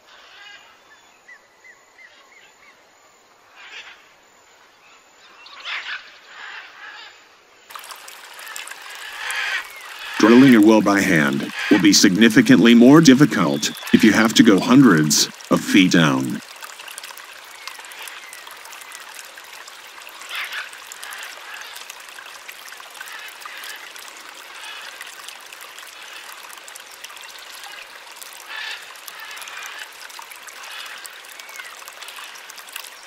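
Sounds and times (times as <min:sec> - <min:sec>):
water trickling in a well: 0:07.6 - 0:33.0
louder water splashes: 0:07.7 - 0:24.4.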